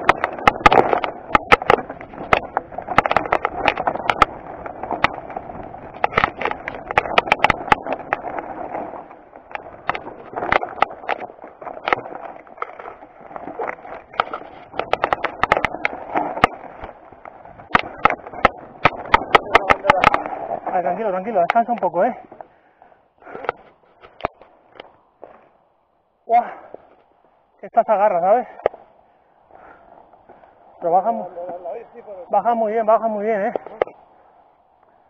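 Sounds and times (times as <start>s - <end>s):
bike parts rattling: 0.0s - 22.6s
tyres crunching over stones: 0.0s - 25.7s.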